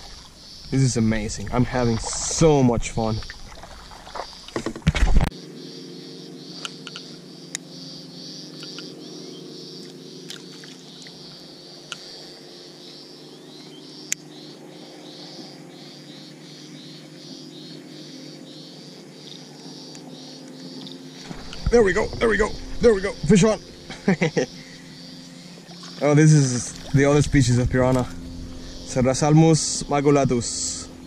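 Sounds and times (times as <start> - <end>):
steady low hum: 0.0 - 31.0
small animals chirping: 6.4 - 27.3.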